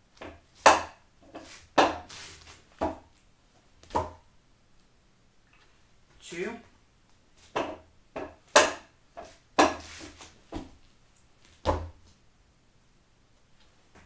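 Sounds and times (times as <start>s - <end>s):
bare foot stamping wood: 0.2s - 1.0s, 1.8s - 2.1s, 2.8s - 3.1s, 3.8s - 4.2s, 7.5s - 10.8s, 11.6s - 12.0s
wooden knocks and slaps: 0.2s - 2.1s, 3.8s - 4.2s, 7.5s - 10.8s.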